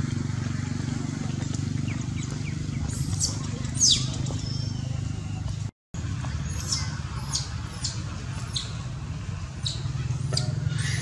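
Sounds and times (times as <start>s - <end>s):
high-pitched animal squeaks: 3.0s - 5.5s, 9.6s - 11.0s.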